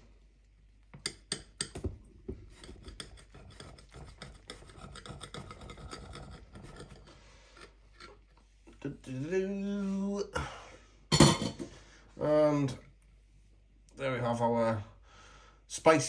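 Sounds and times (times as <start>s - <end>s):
knife sawing through bread: 2.5s - 8.2s.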